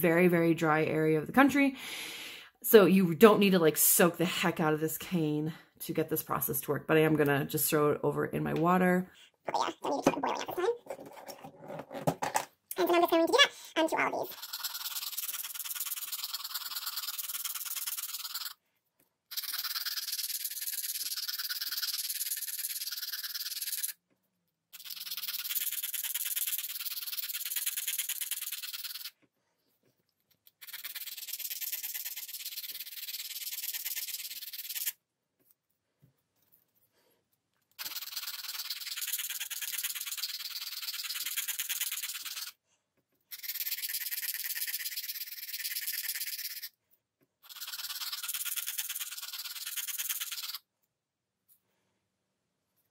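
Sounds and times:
metal tool scratching cane: 14.3s - 18.6s.

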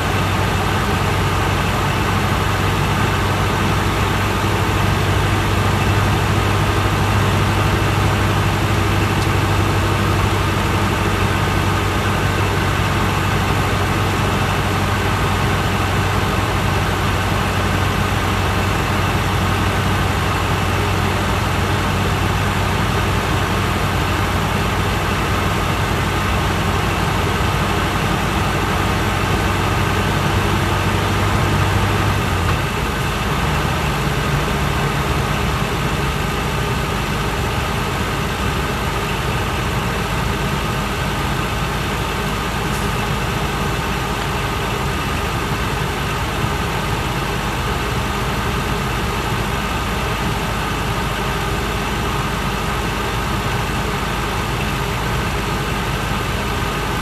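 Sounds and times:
bus diesel engine hum: 0.0s - 57.0s
road noise: 0.0s - 57.0s.

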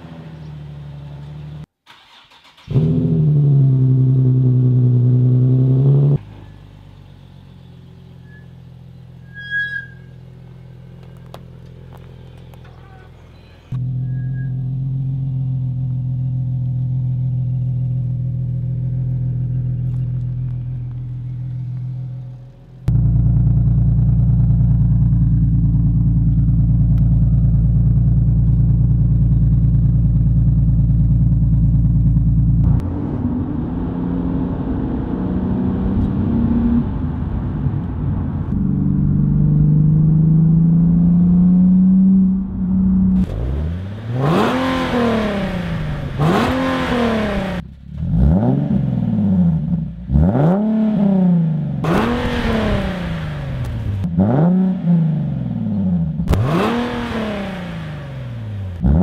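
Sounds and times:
car engine idling: 10.1s - 32.8s
engine revs climbing: 38.5s - 59.0s.

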